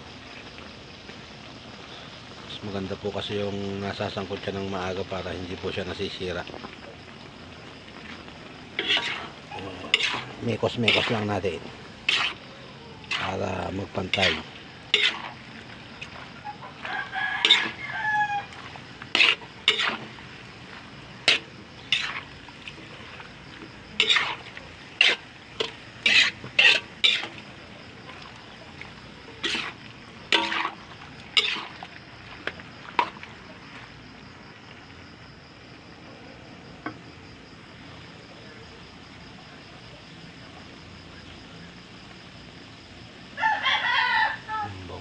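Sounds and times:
metal spatula scraping wok: 8.0 - 15.5, 16.2 - 23.2, 23.9 - 27.4, 29.3 - 31.8
rooster crowing: 16.4 - 18.7, 43.3 - 44.9.

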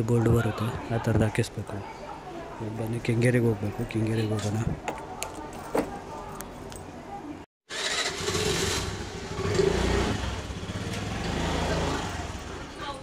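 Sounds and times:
scooter engine running: 7.7 - 13.0.

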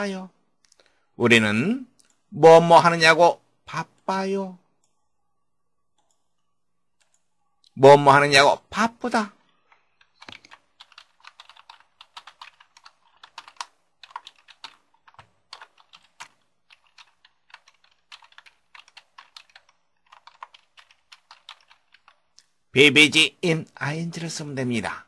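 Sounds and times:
computer keyboard typing: 5.9 - 7.3, 9.7 - 22.5.

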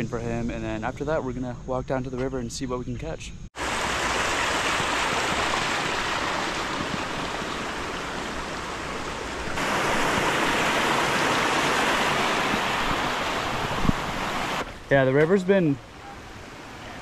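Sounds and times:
creek rushing over rocks: 3.6 - 17.0.

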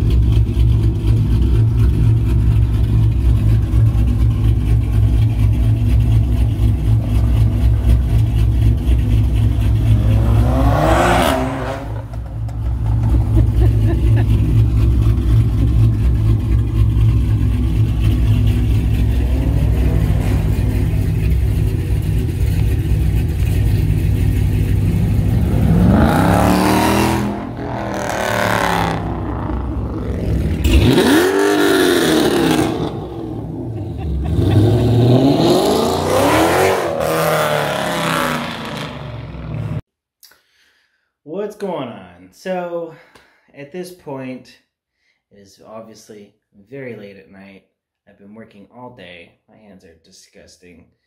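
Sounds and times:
car engine idling and revving: 0.0 - 39.9.

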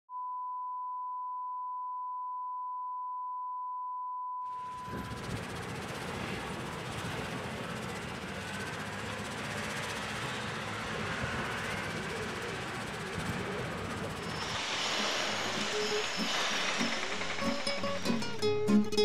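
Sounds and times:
steady test-tone beep: 0.1 - 5.2.

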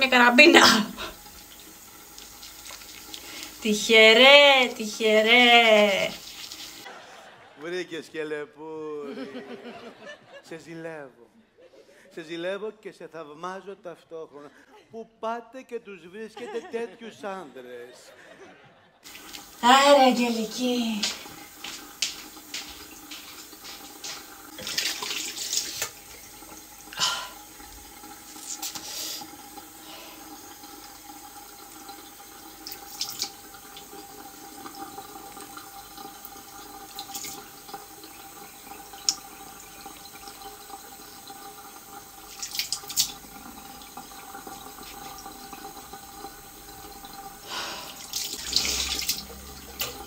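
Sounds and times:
water splashes: 0.0 - 6.9, 19.1 - 50.0
tap running into a sink: 1.2 - 3.6, 19.1 - 47.4, 48.0 - 50.0.

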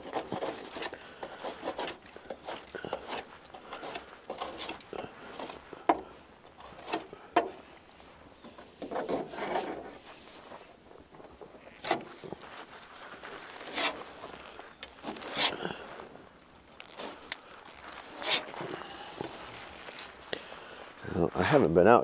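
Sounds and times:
metal scraper rasping: 18.2 - 18.6.

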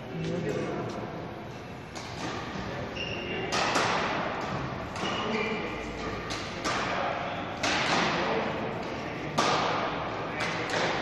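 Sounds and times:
sharp hits echoing in a hall: 0.0 - 11.0
brief high squeaks: 2.9 - 3.4.

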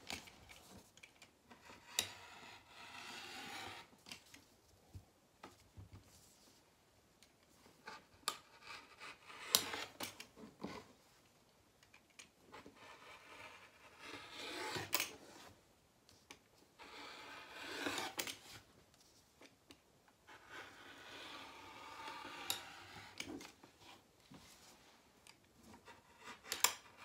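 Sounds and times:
blade scraping through fabric: 1.8 - 3.9, 12.9 - 15.5, 16.8 - 18.6, 20.4 - 23.4.

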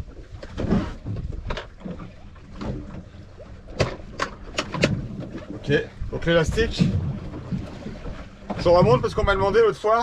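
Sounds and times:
low sea and boat rumble: 0.0 - 10.0
fishing tackle clicks and knocks: 1.2 - 2.0, 3.7 - 5.2
wind on microphone: 4.7 - 9.7.

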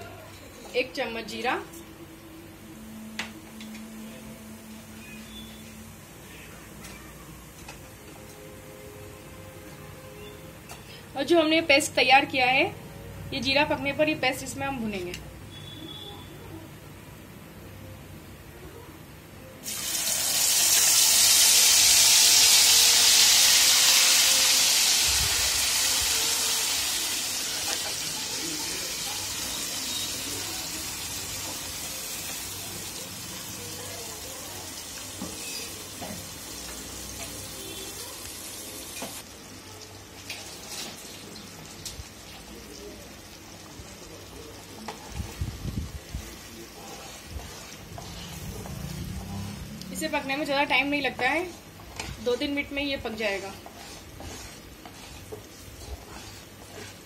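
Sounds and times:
paste sizzling in hot oil: 19.6 - 39.4, 40.2 - 57.0.

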